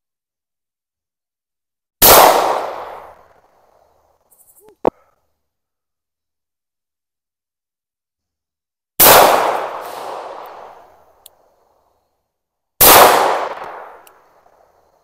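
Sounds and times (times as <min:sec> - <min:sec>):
pistol shots echoing: 0:02.0 - 0:03.3, 0:09.0 - 0:11.0, 0:12.8 - 0:14.6.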